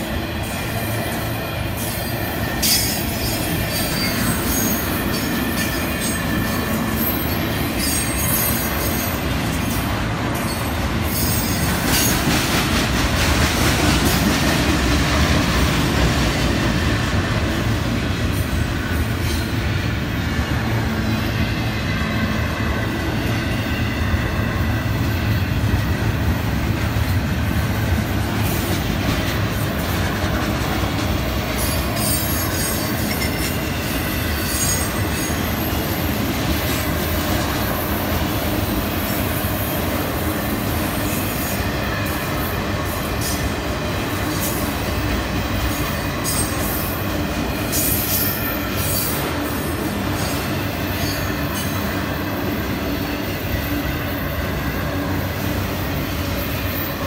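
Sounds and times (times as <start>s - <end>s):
freight cars rumbling on rails: 0.0s - 57.0s
high wheel squeal: 0.5s - 9.8s.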